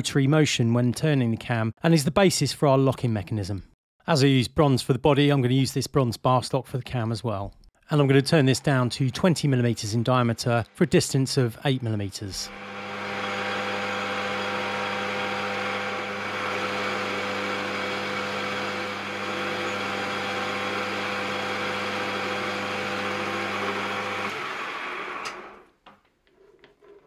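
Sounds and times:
metal lathe humming: 0:12.5 - 0:25.7.

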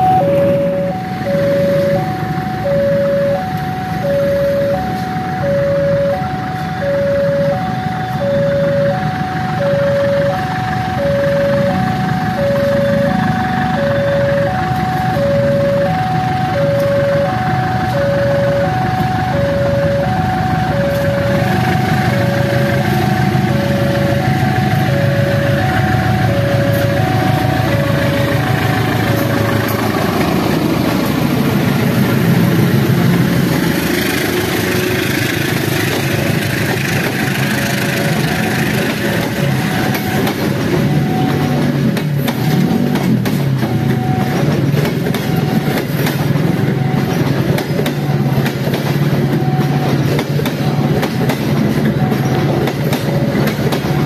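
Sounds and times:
electronic warning bell beeping: 0:00.0 - 0:29.3, 0:38.0 - 0:51.0
diesel locomotive engine rumble: 0:00.0 - 0:54.0.

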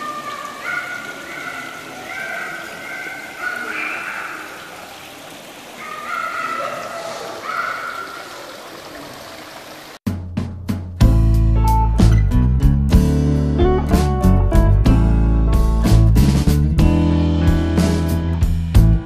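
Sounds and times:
water fountain splashing: 0:00.0 - 0:10.0
guitar music: 0:11.0 - 0:19.0.

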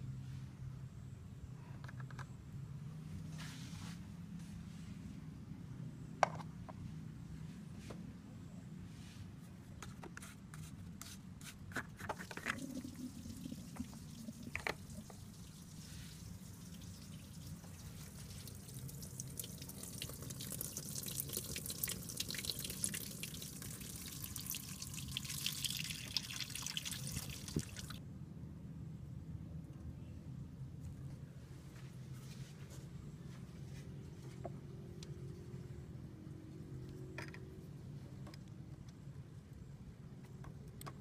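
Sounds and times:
coolant trickling and dripping: 0:12.2 - 0:28.0.

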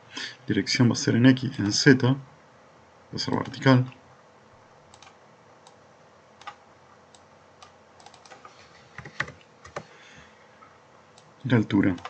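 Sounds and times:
mouse and keyboard clicks: 0:04.9 - 0:05.8.

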